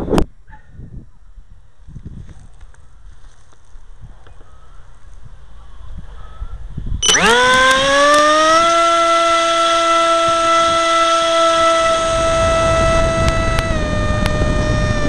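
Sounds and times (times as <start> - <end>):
wind rumble on microphone: 0.0 - 15.0
propeller motor whine: 7.0 - 15.0.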